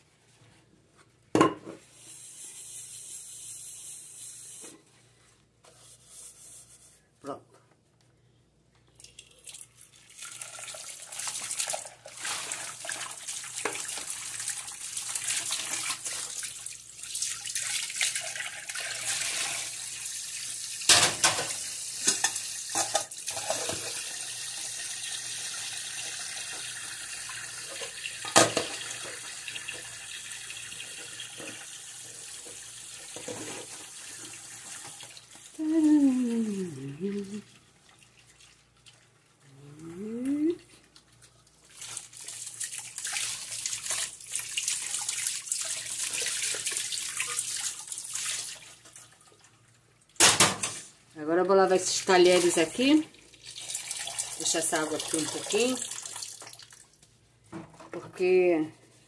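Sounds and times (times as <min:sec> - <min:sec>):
tap water running into sink: 0:09.0 - 0:35.5, 0:41.7 - 0:49.5, 0:52.3 - 0:56.9.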